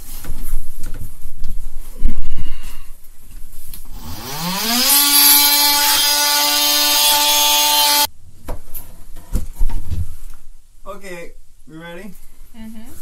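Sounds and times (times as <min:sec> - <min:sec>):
cordless drill whine: 0:03.9 - 0:08.1.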